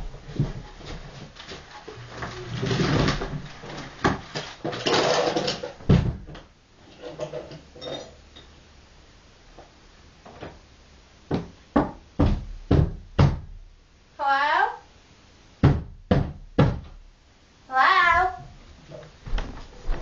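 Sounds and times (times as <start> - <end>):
sharp knocks: 15.6 - 17.0.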